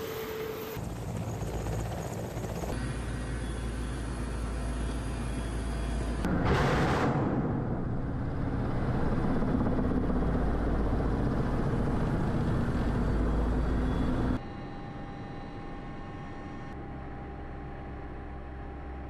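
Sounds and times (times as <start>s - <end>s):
helicopter engine and rotor: 0.0s - 6.3s, 7.7s - 19.0s.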